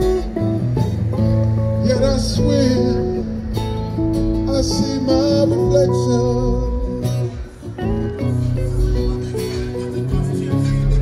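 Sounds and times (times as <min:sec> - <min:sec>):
acoustic guitar: 0:00.0 - 0:11.0
electric guitar: 0:00.0 - 0:11.0
person singing: 0:01.8 - 0:03.6, 0:04.4 - 0:11.0.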